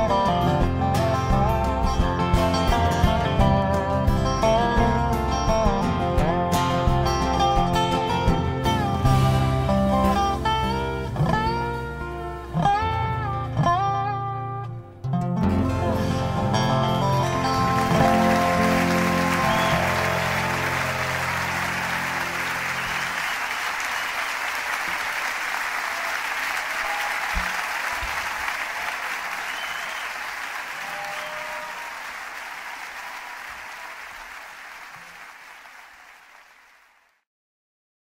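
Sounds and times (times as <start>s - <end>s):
audience applauding: 16.1s - 37.2s.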